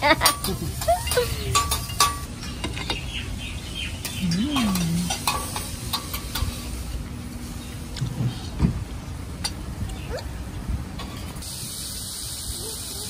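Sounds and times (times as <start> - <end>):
food sizzling on a griddle: 0.0 - 2.4, 5.1 - 7.7, 11.1 - 13.0.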